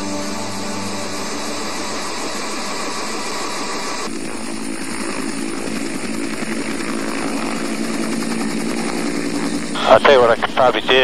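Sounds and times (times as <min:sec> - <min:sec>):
helicopter engine noise: 0:00.0 - 0:11.0
helicopter rotor chopping: 0:00.0 - 0:11.0.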